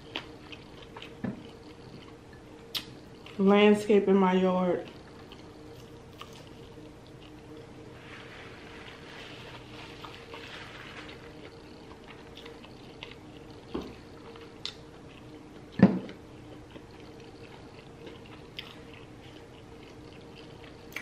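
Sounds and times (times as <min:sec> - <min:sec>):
close chewing with wet mouth sounds: 0:00.0 - 0:03.7, 0:04.7 - 0:07.7, 0:11.2 - 0:21.0.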